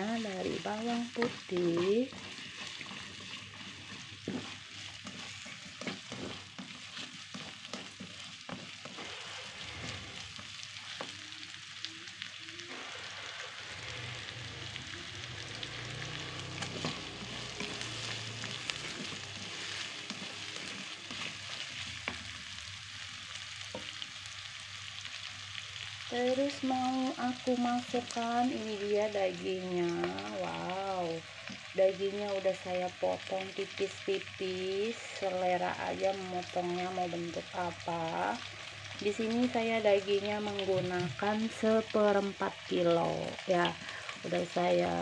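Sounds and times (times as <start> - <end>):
garlic and onion sizzling in oil: 0.0 - 45.0
utensil scraping a pan: 1.5 - 10.6, 16.5 - 22.2.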